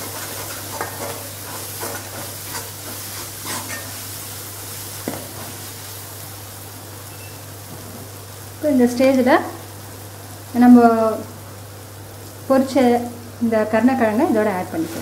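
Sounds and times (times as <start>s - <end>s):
spatula scraping a pan: 0.0s - 4.3s
masala sizzling in oil: 0.0s - 15.0s.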